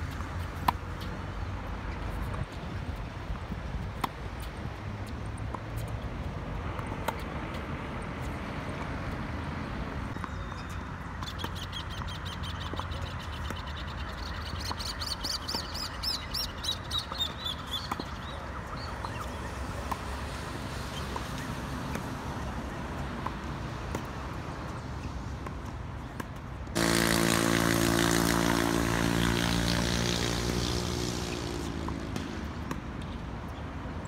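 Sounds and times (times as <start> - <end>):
racket hitting tennis ball: 4.0 - 4.2.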